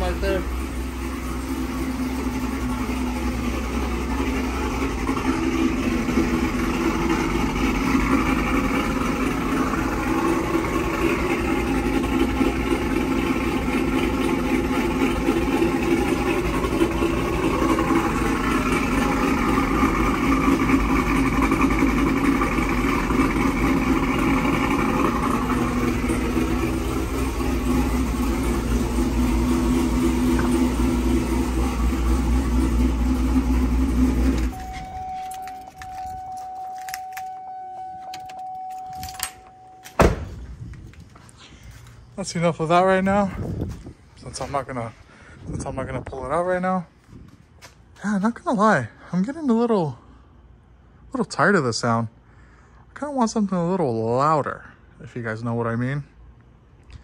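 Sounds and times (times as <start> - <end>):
truck engine idling: 0.0 - 45.6.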